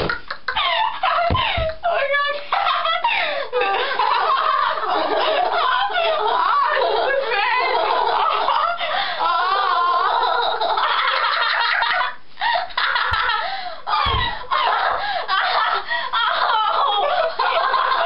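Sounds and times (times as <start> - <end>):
girls laughing and shrieking: 0.6 - 18.0
dull thumps: 14.0 - 14.4.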